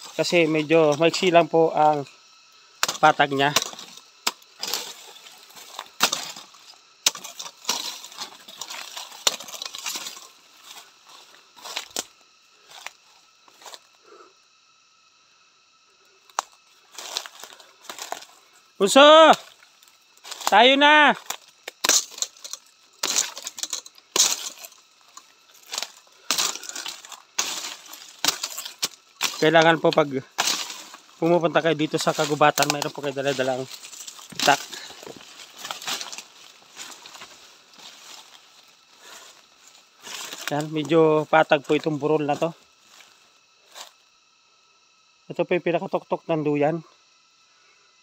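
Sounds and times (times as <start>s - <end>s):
brushing against undergrowth: 0.0s - 13.9s, 19.4s - 44.0s
twigs snapping: 0.9s - 12.1s, 16.3s - 18.4s, 19.4s - 40.8s
footsteps crunching dry leaves: 2.9s - 13.7s, 16.5s - 18.4s, 19.3s - 43.1s
footsteps through dry leaves: 25.6s - 40.8s.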